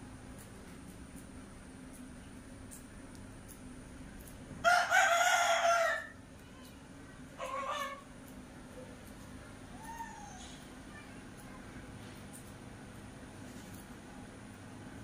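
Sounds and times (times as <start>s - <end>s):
rooster crowing: 4.6s - 6.2s.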